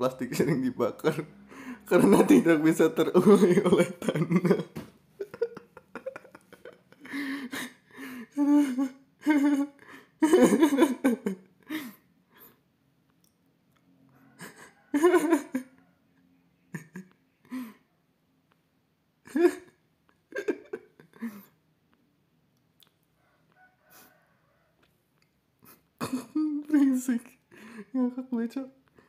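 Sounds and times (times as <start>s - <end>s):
man laughing: 0.0s - 12.0s, 14.4s - 15.8s, 16.7s - 17.8s, 19.3s - 21.5s, 25.6s - 28.7s.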